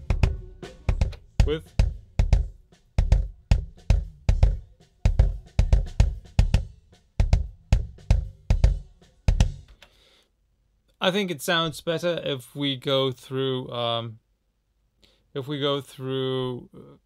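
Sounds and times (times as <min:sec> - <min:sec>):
deep kick drum hits: 0:00.0 - 0:09.7.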